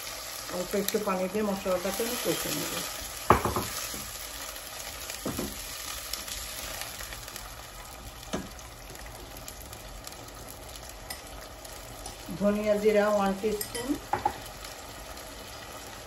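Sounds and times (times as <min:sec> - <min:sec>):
onions sizzling in oil: 0:00.0 - 0:16.0
spatula knocking against pan: 0:03.3 - 0:03.8.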